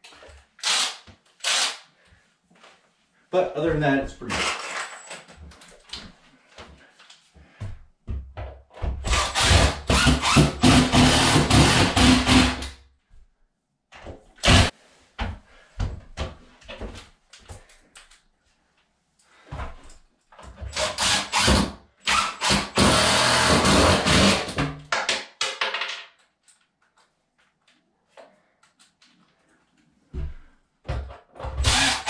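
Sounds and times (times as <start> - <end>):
cordless driver driving screws: 0.6 - 1.8, 31.6 - 32.0.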